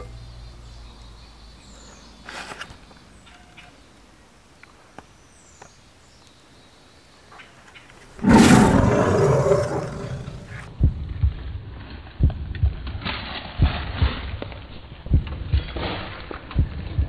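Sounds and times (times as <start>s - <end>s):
quiet outdoor background: 0.0s - 17.0s
big cat roaring: 8.2s - 10.7s.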